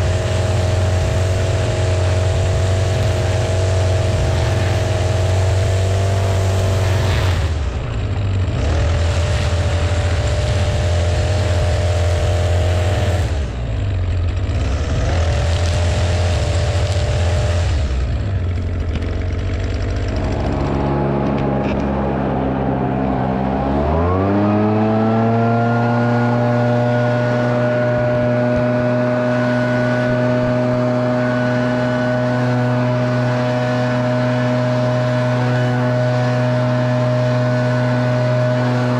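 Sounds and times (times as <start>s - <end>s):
string trimmer running: 0.0s - 38.9s.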